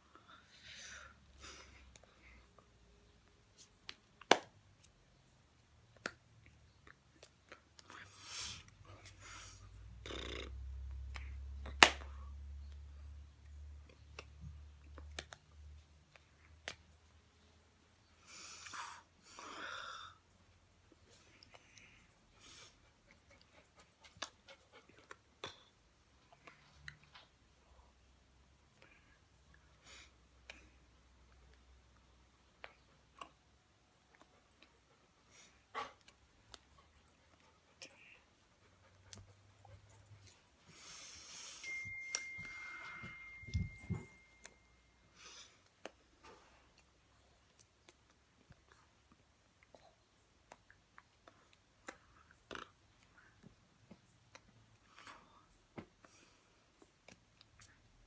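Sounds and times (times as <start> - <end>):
faint high-pitched tone: 41.5 - 45.1.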